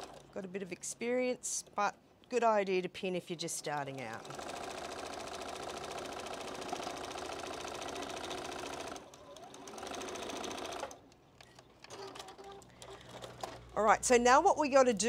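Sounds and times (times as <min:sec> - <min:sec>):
sewing machine stitching: 0:04.1 - 0:11.0, 0:11.9 - 0:13.9.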